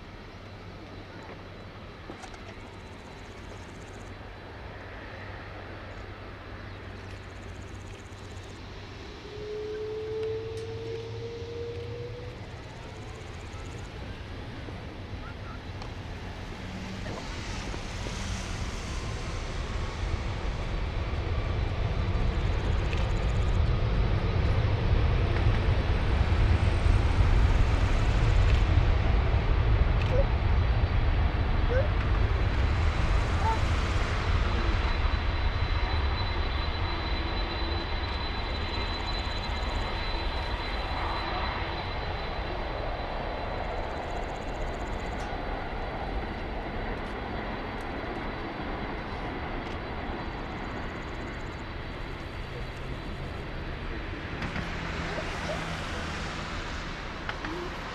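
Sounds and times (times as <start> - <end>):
jet engines deep rumble: 0.0 - 57.9
thin high whine: 31.6 - 49.2.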